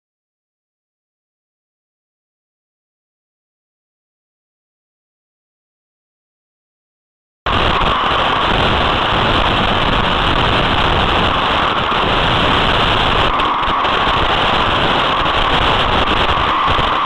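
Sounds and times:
radio static: 7.5s - 17.0s
toy truck motor and tyres: 7.5s - 17.0s
wind noise: 7.5s - 17.0s.

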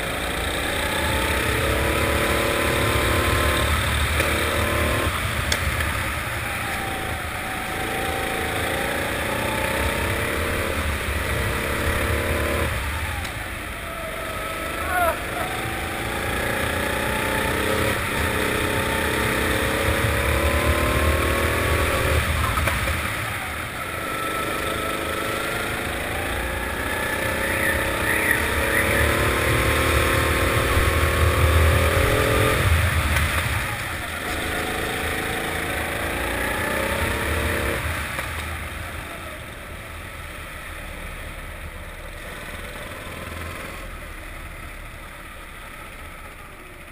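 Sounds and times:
kart engine revving: 0.0s - 46.9s.

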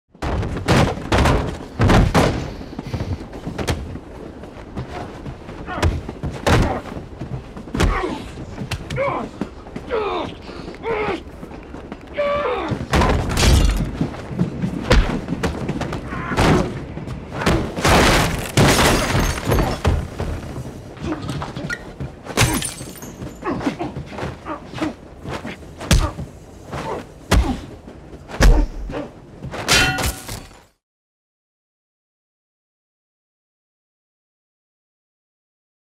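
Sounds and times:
heavy thuds of blows landing: 0.2s - 4.0s, 4.8s - 9.1s, 12.7s - 20.7s, 25.3s - 28.9s
smashing: 17.8s - 20.1s.

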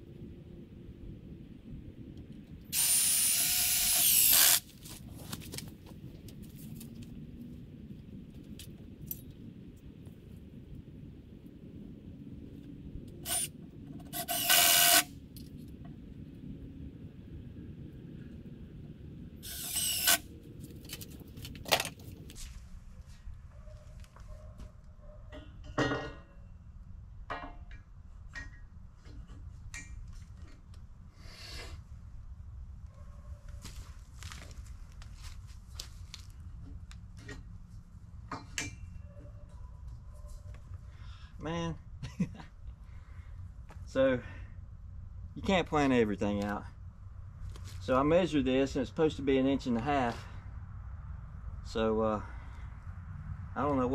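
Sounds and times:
power drill whining: 2.7s - 4.6s, 13.2s - 13.5s, 14.1s - 15.1s, 19.4s - 20.2s.

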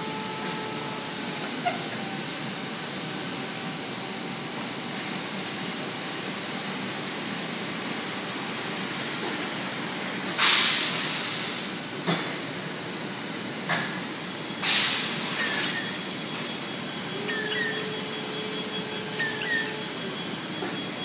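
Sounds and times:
steady machine noise: 0.0s - 10.4s, 14.2s - 21.0s
loud burst of hissing: 10.4s - 11.7s.

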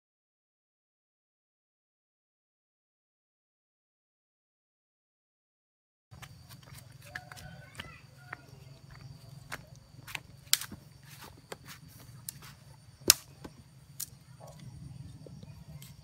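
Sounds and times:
footsteps on dry ground: 6.1s - 13.7s
twigs cracking and snapping: 8.9s - 14.7s.

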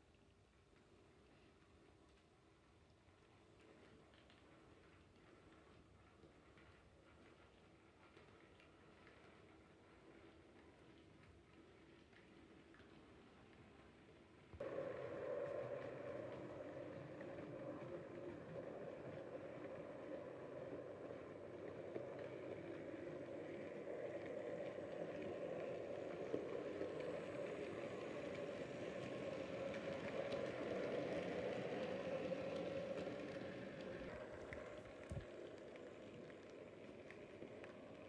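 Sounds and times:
wheels clicking on track: 3.1s - 38.0s
model train motor whirring: 14.6s - 37.6s.

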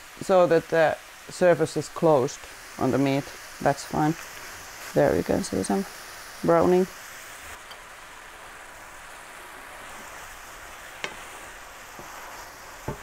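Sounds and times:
meat sizzling in a frying pan: 0.0s - 13.0s
wooden spatula stirring: 9.6s - 13.0s.

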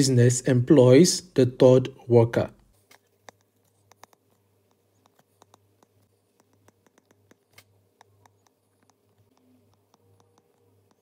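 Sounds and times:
faint low hum: 0.0s - 11.0s
stylus tapping on pen tablet: 2.9s - 11.0s.

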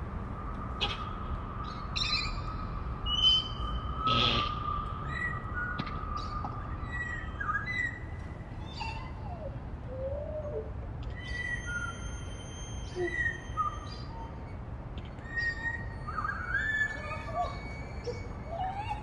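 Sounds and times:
parrot whistles and chirps: 11.2s - 14.5s, 15.2s - 19.0s.

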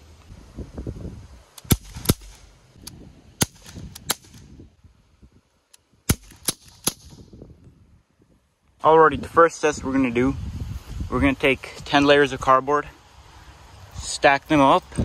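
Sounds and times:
bb pistol firing sharp pops: 1.6s - 2.5s, 3.4s - 4.5s, 6.1s - 7.2s.

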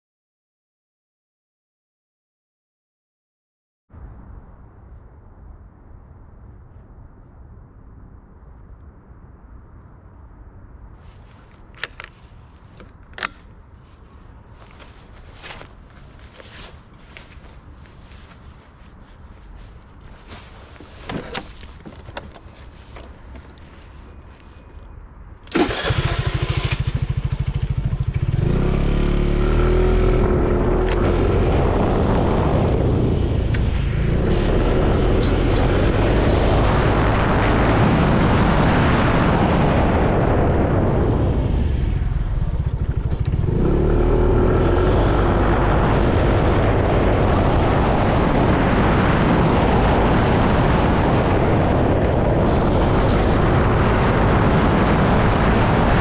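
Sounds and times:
wind on microphone: 4.0s - 56.0s
motorbike engine revving: 25.5s - 33.0s, 42.4s - 47.1s.

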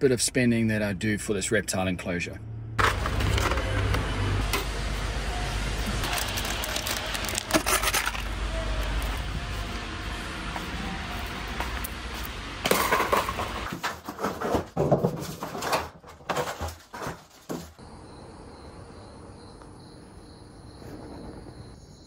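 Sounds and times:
knocks and rustling: 12.7s - 17.8s
crickets chirping: 17.8s - 22.0s.

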